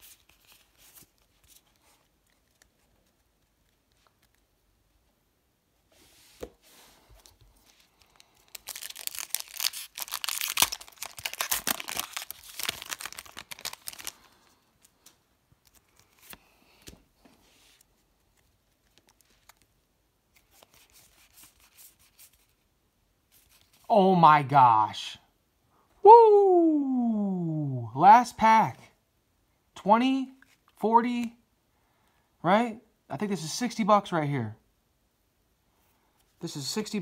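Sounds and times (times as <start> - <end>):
foil wrapper tearing and crinkling: 8.0 - 16.2.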